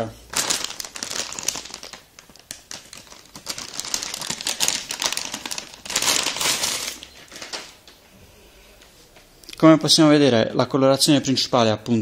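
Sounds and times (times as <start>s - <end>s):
antistatic bag crinkling: 0.3s - 7.8s.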